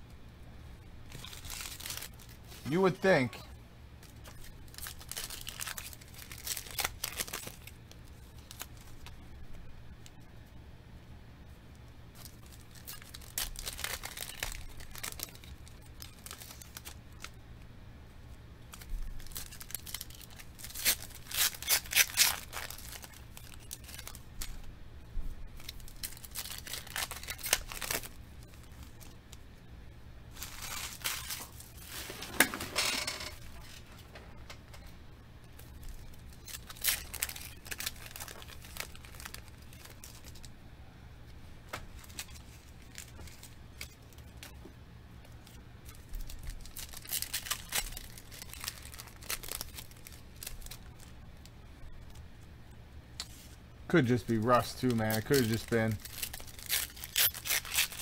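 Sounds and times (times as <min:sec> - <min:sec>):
foil wrappers tearing and crinkling: 0:01.1 - 0:03.3, 0:04.0 - 0:09.2, 0:12.2 - 0:17.4, 0:18.7 - 0:24.6, 0:25.5 - 0:29.2, 0:30.3 - 0:33.9, 0:35.6 - 0:40.5, 0:42.0 - 0:44.6, 0:45.4 - 0:52.2, 0:53.2 - 0:58.0.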